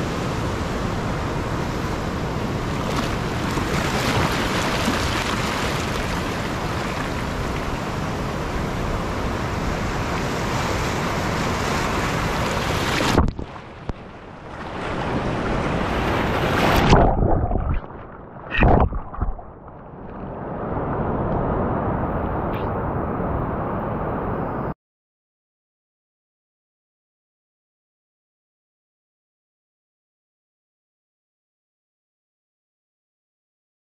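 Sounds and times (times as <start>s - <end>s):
surf breaking waves: 0.0s - 24.7s
water washing over microphone: 2.8s - 7.8s, 12.4s - 13.8s, 14.6s - 20.3s.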